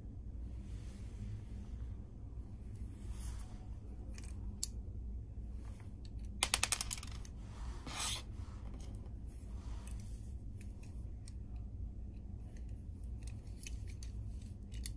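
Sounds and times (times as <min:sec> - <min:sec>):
steady low hum: 0:00.0 - 0:14.9
small plastic parts clicking: 0:06.0 - 0:07.3, 0:12.5 - 0:14.9.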